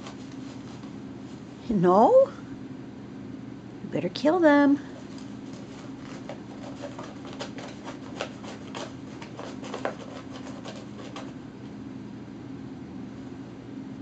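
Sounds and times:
paper towel crinkling and tearing: 0.0 - 1.5, 4.9 - 11.4.

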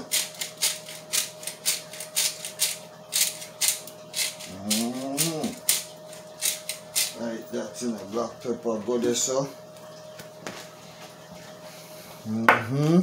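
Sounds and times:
pepper shaker rattling: 0.0 - 7.2
man humming low rising: 4.4 - 5.6, 12.2 - 13.0.

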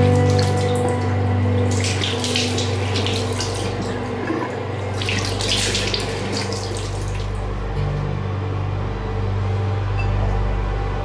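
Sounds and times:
tap water running into sink: 0.0 - 7.5
water splashing on hands: 0.0 - 7.6.

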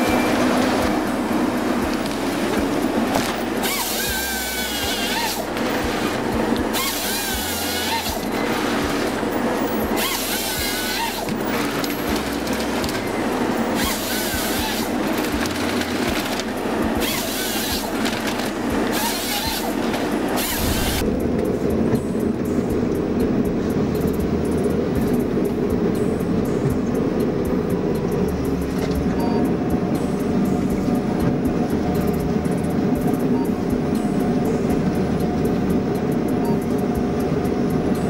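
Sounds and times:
harvester diesel engine and hydraulics: 0.0 - 38.0
high wavering squeal: 3.6 - 12.1.

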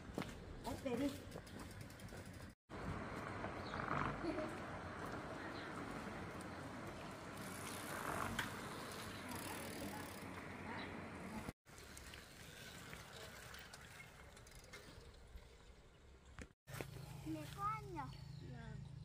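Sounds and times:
outdoor noise: 0.0 - 19.0
bicycle rattle and freewheel ticking: 0.8 - 2.6, 7.4 - 10.4, 11.8 - 15.5.

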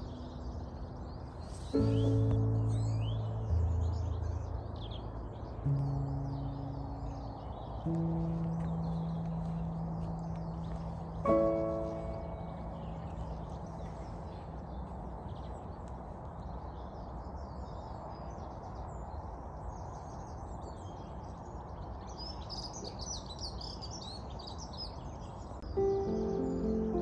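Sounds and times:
low outdoor hum: 0.0 - 19.7
small birds chirping: 0.0 - 27.0.

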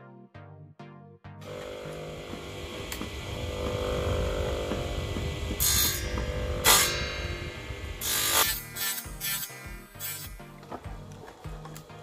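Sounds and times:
table saw running: 1.4 - 9.5
saw cutting wooden strip: 1.5 - 12.0.

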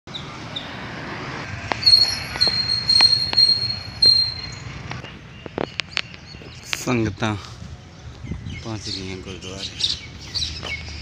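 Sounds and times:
road traffic rumble: 0.1 - 11.0
high-pitched squeal: 1.4 - 5.0.

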